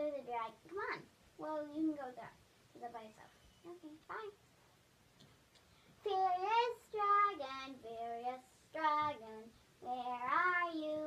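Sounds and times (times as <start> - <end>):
child singing: 6.0 - 11.0.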